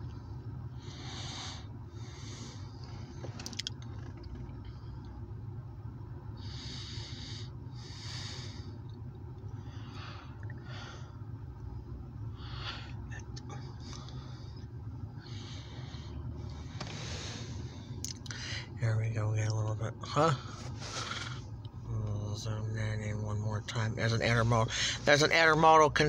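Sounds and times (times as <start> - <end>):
vehicle cabin rumble: 0.0 - 26.0
person breathing: 0.8 - 2.8, 6.4 - 8.8, 9.5 - 11.2, 12.3 - 18.8, 20.4 - 21.5, 24.7 - 25.1.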